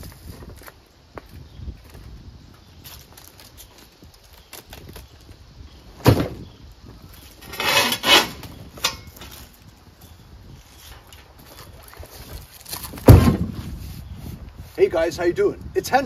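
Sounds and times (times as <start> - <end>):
heavy box thud: 6.0 - 6.4, 13.0 - 13.6
metal clank: 7.4 - 9.4
hand truck scraping and rattling: 7.4 - 9.5.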